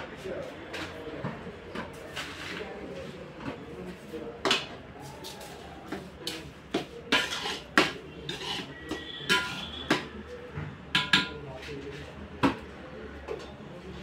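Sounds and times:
metal ladle clanking in pot: 7.1 - 10.0, 11.0 - 11.4.

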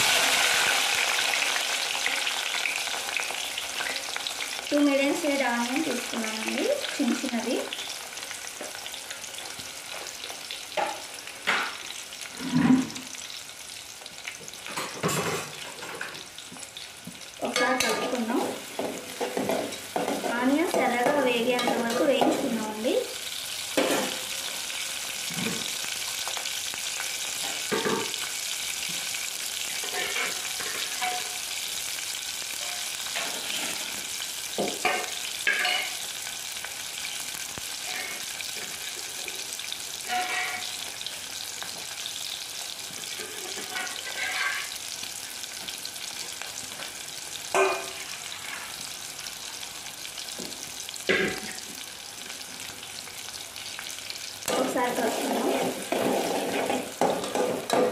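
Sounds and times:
onions sizzling in hot oil: 0.0 - 57.9.

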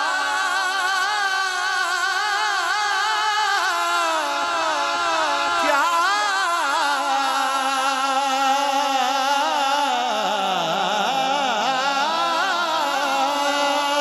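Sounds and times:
man singing with vibrato: 0.0 - 14.0.

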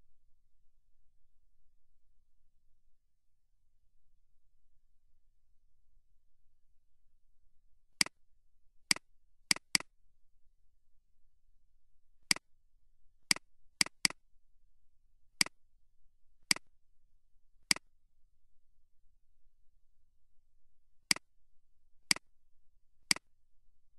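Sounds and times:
computer mouse button clicks: 8.9 - 9.8, 13.3 - 14.2.

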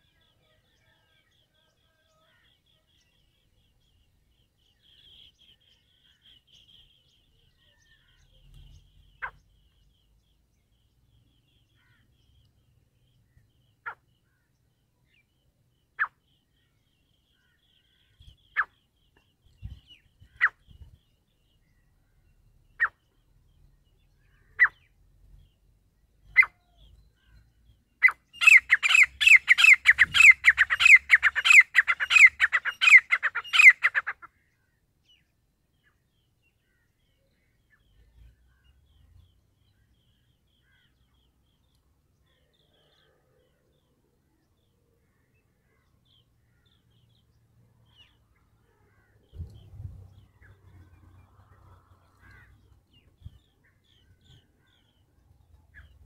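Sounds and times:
francolin calling: 28.0 - 34.4.

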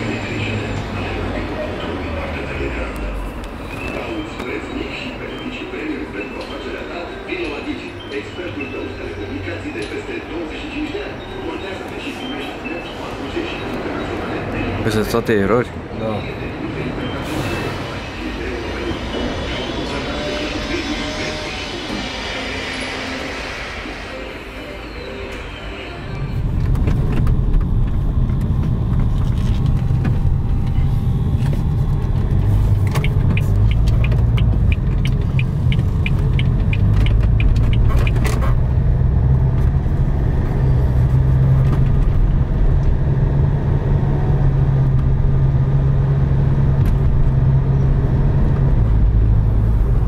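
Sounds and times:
sharp ticks: 32.8 - 38.3.

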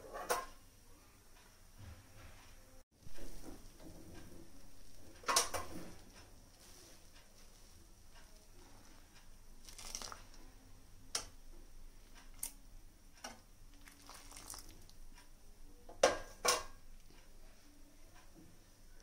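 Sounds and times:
spoon stirring milk in pan: 3.0 - 12.6, 13.2 - 17.6.

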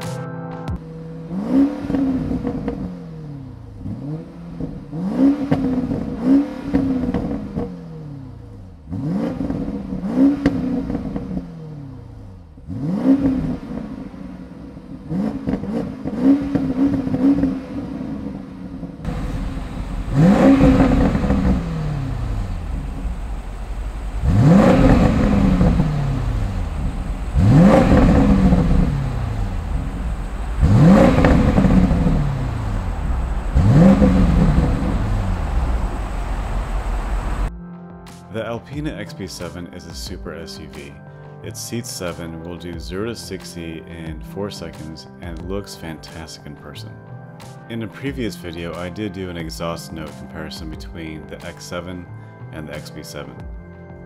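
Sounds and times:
car engine revving: 0.8 - 37.5
steady rush: 19.1 - 37.5.

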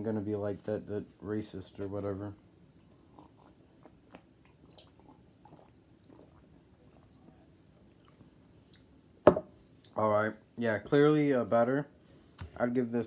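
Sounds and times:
person drinking and swallowing: 3.0 - 8.2.

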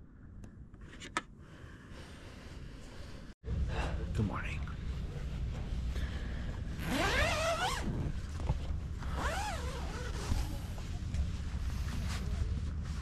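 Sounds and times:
zipper pulled: 6.8 - 8.3, 9.0 - 10.6.

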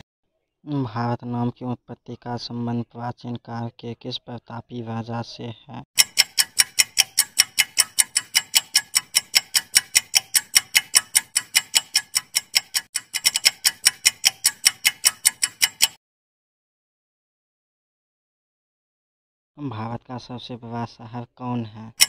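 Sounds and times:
clock ticking: 6.0 - 16.0.

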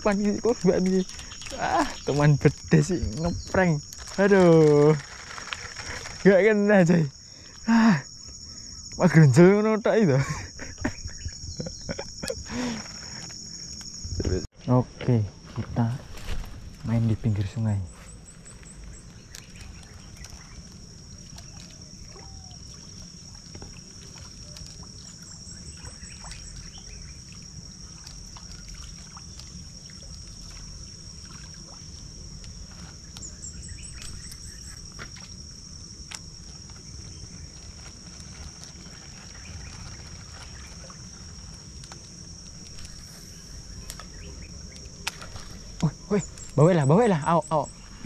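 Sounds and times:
high-pitched insect drone: 0.0 - 48.0.

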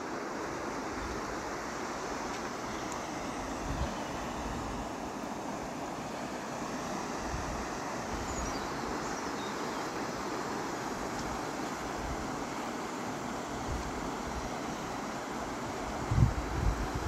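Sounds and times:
river water pouring over weir: 0.0 - 17.0
wind rumbling on microphone: 3.3 - 4.9, 15.8 - 17.0.

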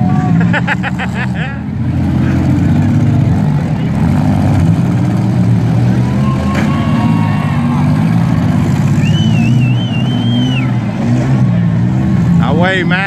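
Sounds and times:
car engines revving: 0.0 - 13.0
wavering high-pitched whistle: 9.0 - 10.8.

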